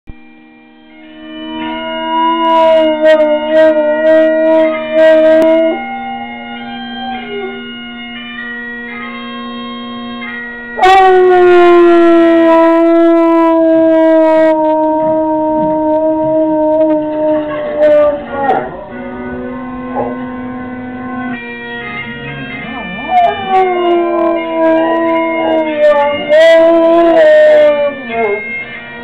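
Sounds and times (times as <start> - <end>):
bagpipe music: 0.4 - 29.0
dog howling: 1.4 - 7.8, 10.8 - 28.7.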